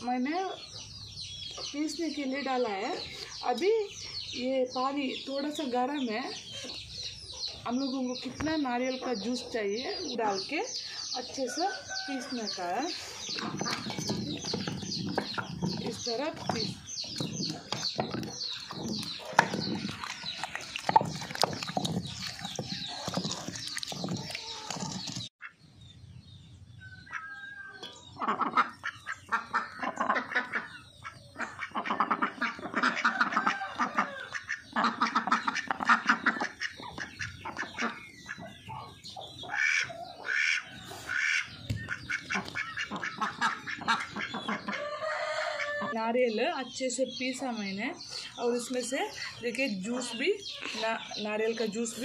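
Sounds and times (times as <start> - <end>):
ducks quacking: 28.1 - 45.9.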